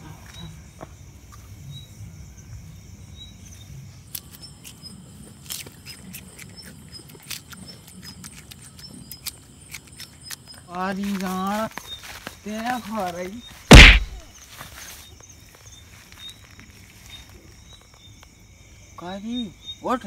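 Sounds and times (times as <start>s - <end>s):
crickets chirping: 0.0s - 20.0s
cucumber crunching: 13.7s - 14.2s.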